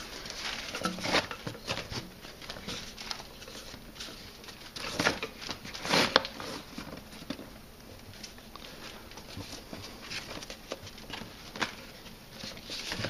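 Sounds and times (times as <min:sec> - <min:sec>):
rush strands rustling and scraping: 0:00.0 - 0:07.3.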